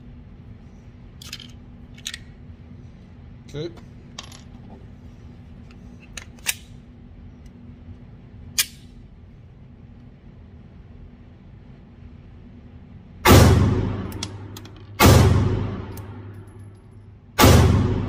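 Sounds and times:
steady low hum: 0.0 - 18.0
pistol metallic clicks: 8.5 - 8.9, 15.9 - 16.8.

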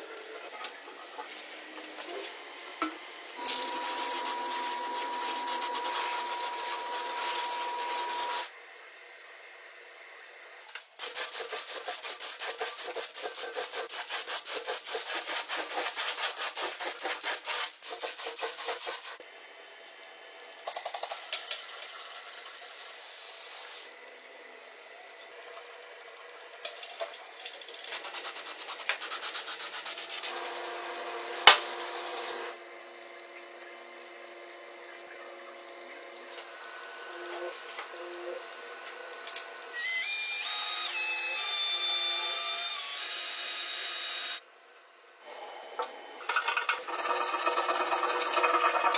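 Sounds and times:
rubbing strokes on hard surface: 3.6 - 8.4, 11.0 - 19.2.

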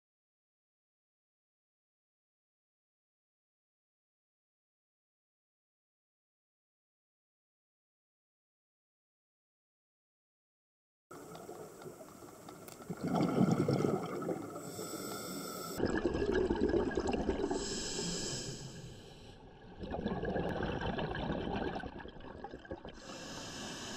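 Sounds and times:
diver exhaling bubbles: 12.8 - 23.9
regulator hiss on inhale: 14.5 - 15.8, 17.6 - 19.4, 23.0 - 23.9.

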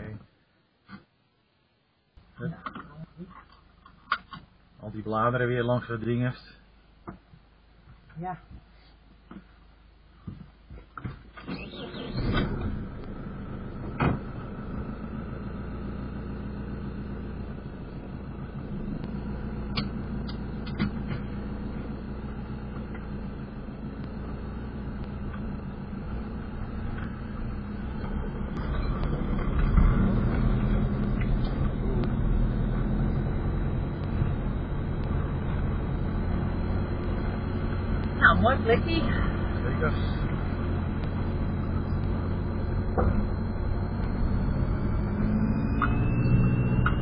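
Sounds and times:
motorhome engine and road noise: 10.3 - 47.0.

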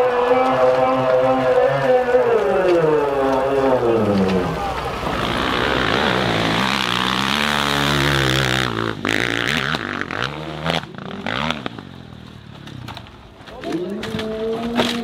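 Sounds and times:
dirt bike engine revving: 2.8 - 12.1.

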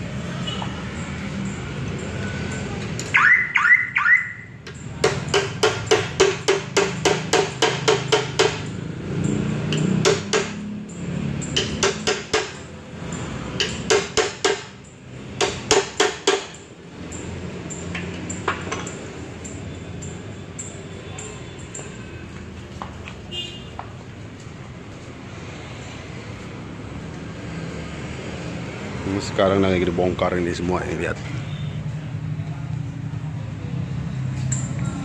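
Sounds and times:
ringing metal taps: 4.6 - 24.0.

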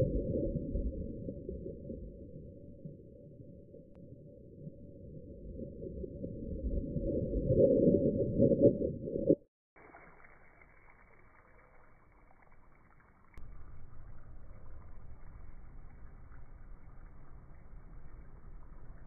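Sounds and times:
water gushing from burst balloon: 9.8 - 13.4.

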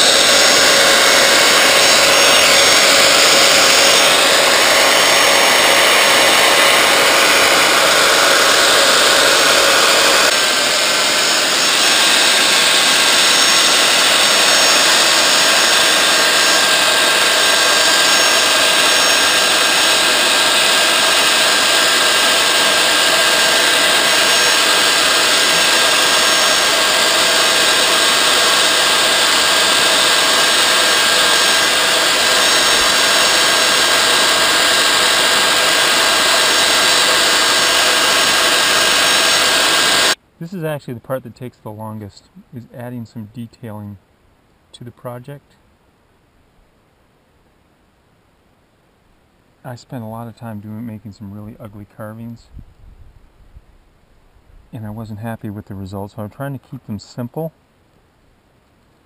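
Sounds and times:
belt sander running: 0.0 - 40.2
wood stick pressed on sanding belt: 0.0 - 40.2.

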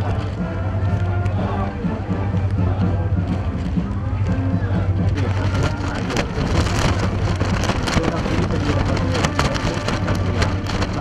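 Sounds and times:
dense crackling noise: 0.0 - 11.0
ship engine drone: 2.9 - 11.0.

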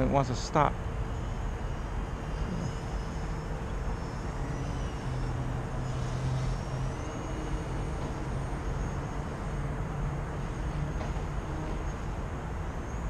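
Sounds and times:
steady background rumble: 0.0 - 5.1.

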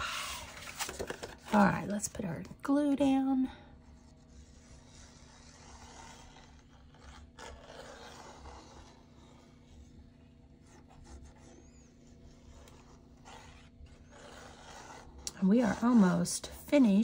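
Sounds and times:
faint low hum: 0.0 - 17.0
paper rustling: 0.1 - 1.7
glue bottle tip scraping paper: 4.3 - 9.7, 10.9 - 16.2.

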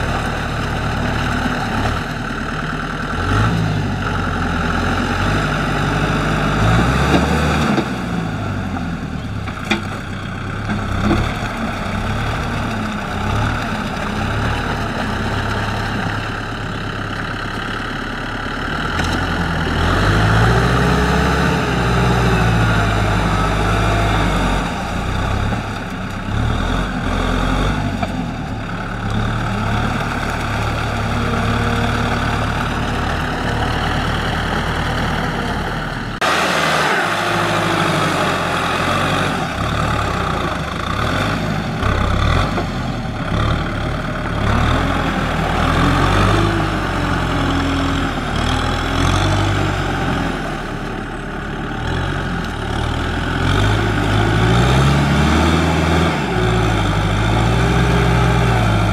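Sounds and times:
tractor diesel engine under load: 0.0 - 58.9.

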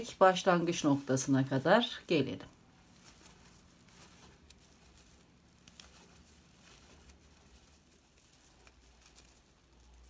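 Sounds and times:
crochet hook ticking and rustling: 2.5 - 10.0.

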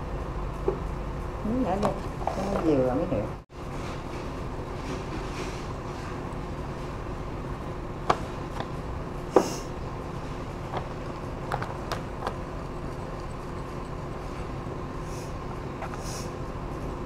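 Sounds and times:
steady background noise: 0.0 - 17.0.

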